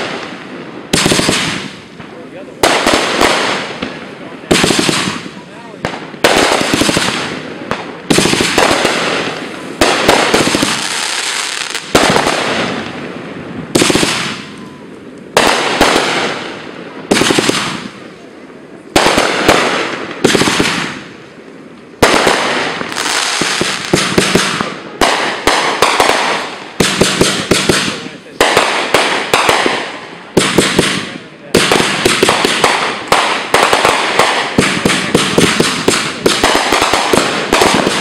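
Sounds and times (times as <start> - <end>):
firework crackle: 0.0 - 38.0
firework shells bursting: 18.9 - 38.0.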